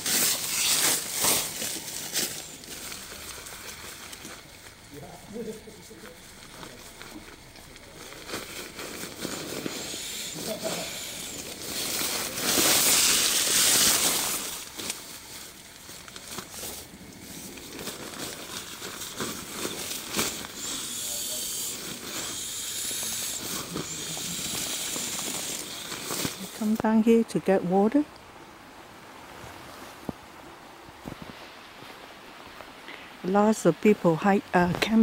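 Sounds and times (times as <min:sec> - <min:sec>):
air hissing through a valve: 0:09.2 - 0:14.7, 0:19.7 - 0:26.6
fabric rustling: 0:11.2 - 0:20.7.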